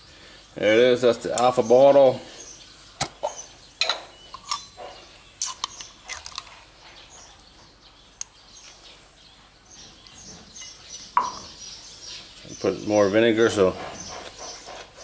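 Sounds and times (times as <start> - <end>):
metal fork clinking against glass jar: 3.8 - 4.8.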